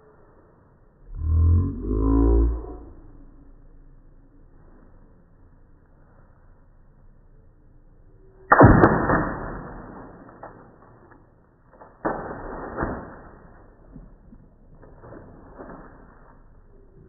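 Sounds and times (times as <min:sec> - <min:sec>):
water balloon slapping concrete: 0:11.7 - 0:16.3.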